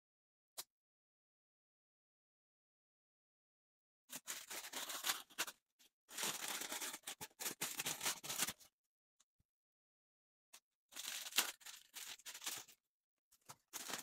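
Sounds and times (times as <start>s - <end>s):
plastic bag crinkling: 4.2s - 8.6s, 11.0s - 12.8s, 13.5s - 14.0s.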